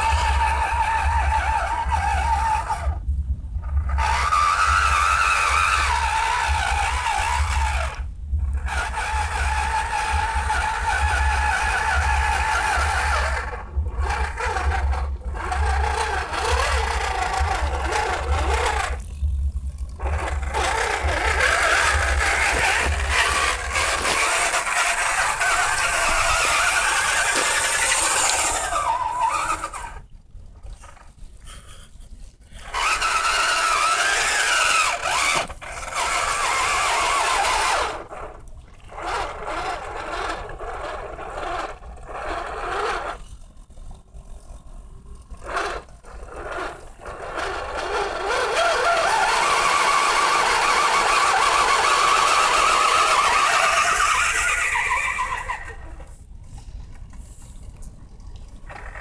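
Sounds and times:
electric motor and gearbox whining: 0.0s - 30.1s, 32.6s - 43.3s, 45.0s - 56.3s, 58.6s - 59.0s
low rumble: 0.0s - 33.5s.

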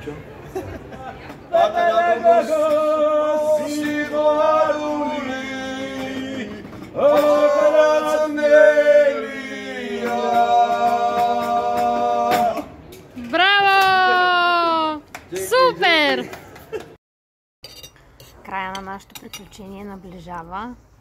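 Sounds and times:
man singing unaccompanied: 1.5s - 12.6s.

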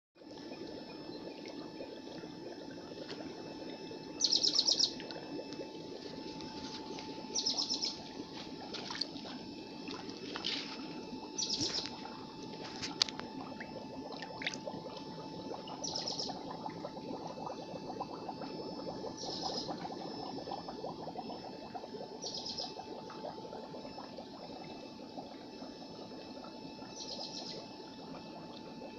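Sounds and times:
running water: 0.2s - 28.6s
bird chirping trill: 4.2s - 5.0s, 7.3s - 8.0s, 11.4s - 11.9s, 15.8s - 16.3s, 22.2s - 22.7s.

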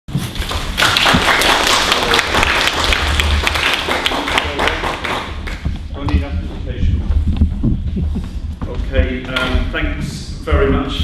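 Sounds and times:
audience clapping: 0.2s - 6.3s.

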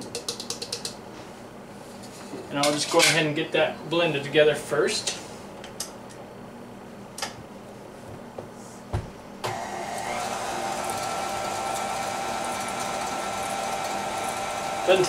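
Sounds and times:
stand mixer motor humming: 9.5s - 15.0s.

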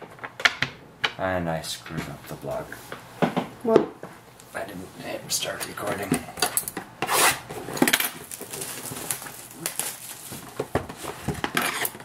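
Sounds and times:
plastic wrap and cardboard crinkling: 7.2s - 12.0s.

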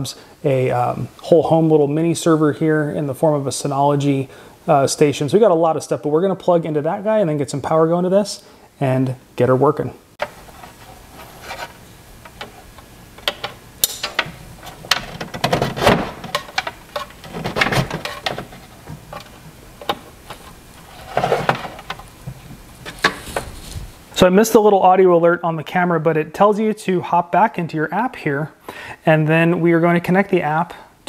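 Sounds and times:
cable rustling: 10.2s - 24.1s
plastic clicks and knocks: 12.2s - 20.5s.

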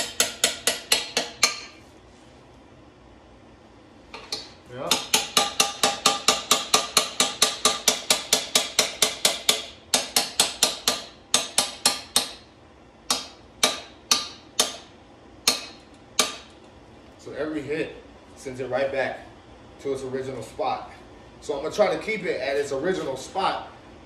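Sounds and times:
hammer tapping on metal: 0.0s - 1.8s, 4.2s - 12.4s, 13.1s - 16.6s.

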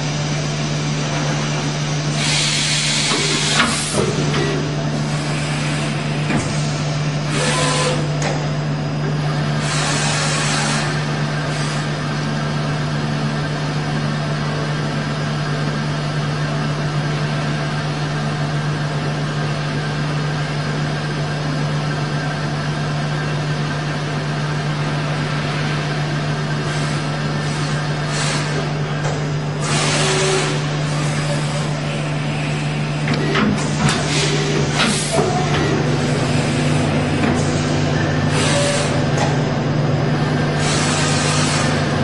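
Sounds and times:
machine hum and whir: 0.0s - 42.0s.

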